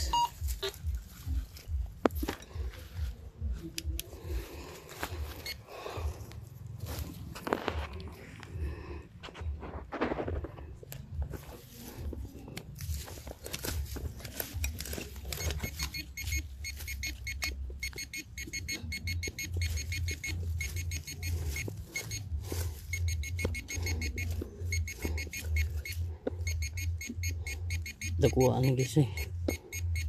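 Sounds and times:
metal detector beeping: 0.0s - 2.3s, 3.8s - 6.0s, 13.6s - 30.0s.

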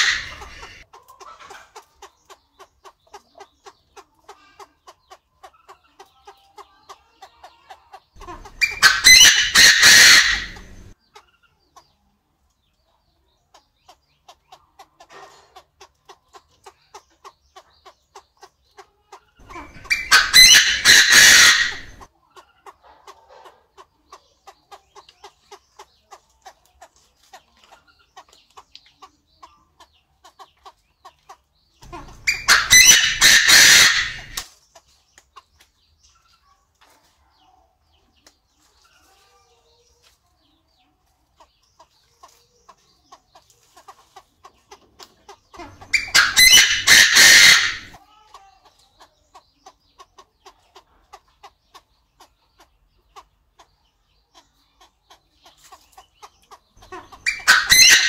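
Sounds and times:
bird giving harsh multi-note call: 31.8s - 34.4s, 45.8s - 48.0s.

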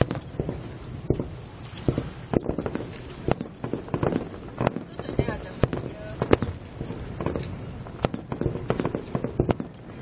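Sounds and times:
distant fireworks bangs: 0.0s - 10.0s.

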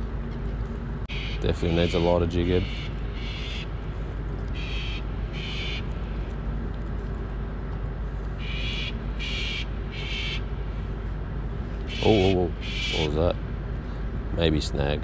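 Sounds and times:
bird calling high notes: 1.1s - 3.8s, 8.4s - 10.5s, 11.9s - 13.3s.

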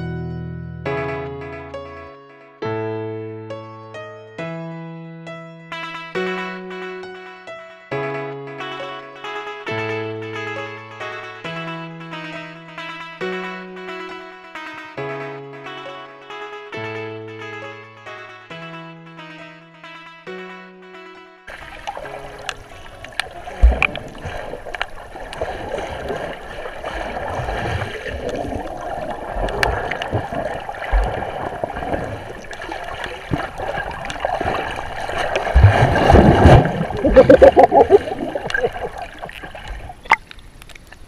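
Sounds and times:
muffled underwater sloshing: 21.5s - 41.0s.

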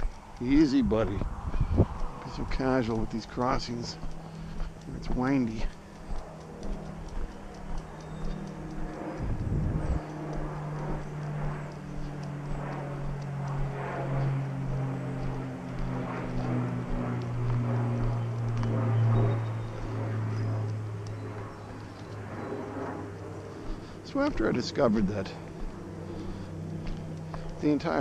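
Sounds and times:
wind gusts on microphone: 0.0s - 4.1s, 9.1s - 11.0s
distant engine droning: 0.0s - 28.0s.

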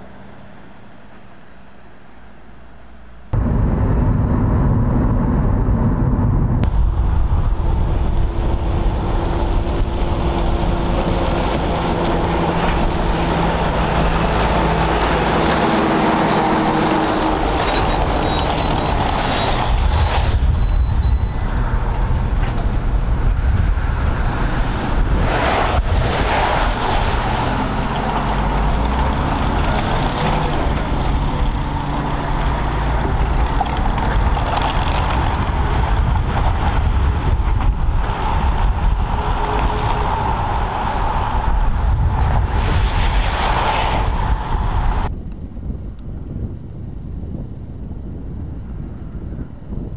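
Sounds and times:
truck diesel engine: 0.0s - 41.7s
tyre and road noise: 0.0s - 49.9s
high-pitched squeal: 10.7s - 22.1s.

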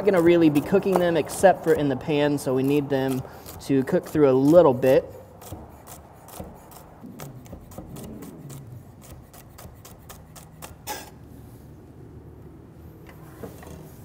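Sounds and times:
knife chopping on wooden board: 0.0s - 1.9s, 2.6s - 11.1s.

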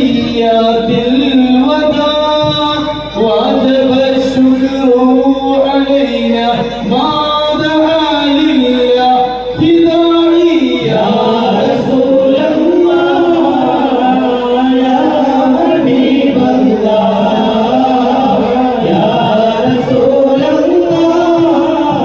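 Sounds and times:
men singing without instruments: 0.0s - 22.0s.

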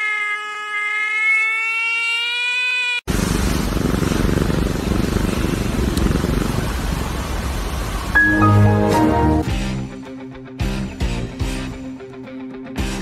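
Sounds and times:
loud steady rough noise: 3.1s - 8.4s.

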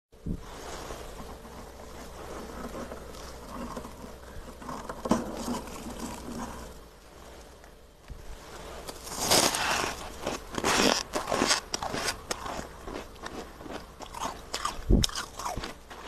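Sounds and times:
hand rubbing freezer frost: 0.4s - 7.4s, 8.4s - 13.8s
frost crunch: 8.4s - 16.0s.

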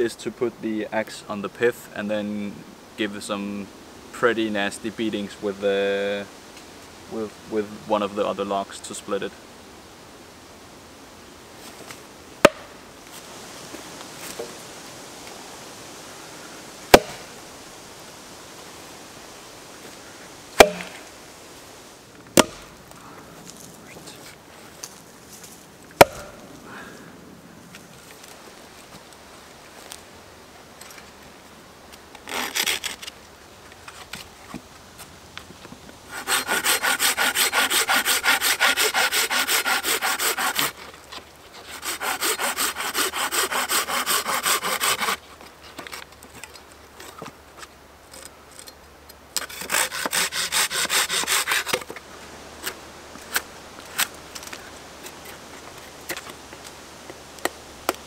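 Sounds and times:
hand saw cutting log: 20.6s - 21.0s, 32.2s - 33.1s, 36.1s - 40.9s, 41.6s - 45.2s, 49.4s - 51.9s.

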